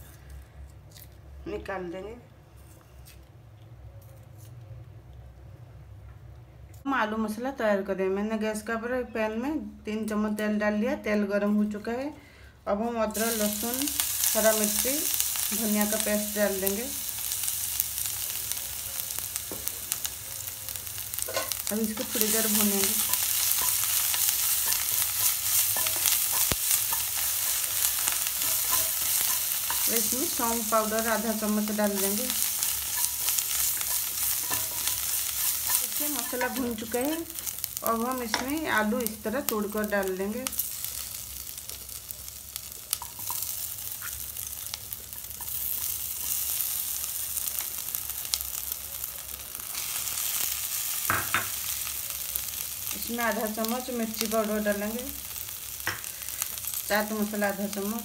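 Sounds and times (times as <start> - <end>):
paste sizzling in hot oil: 13.1 - 58.0.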